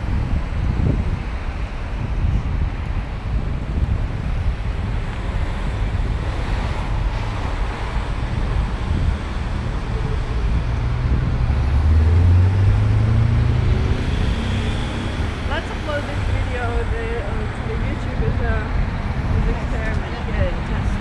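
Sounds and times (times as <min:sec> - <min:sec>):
passing cars rushing: 0:00.0 - 0:21.0
vehicle passing close: 0:05.2 - 0:21.0.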